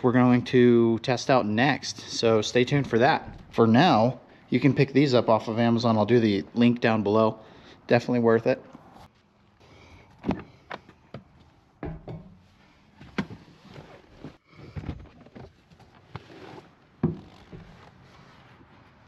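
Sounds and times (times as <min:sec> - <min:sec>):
clothing rustling: 0:12.4 - 0:19.0.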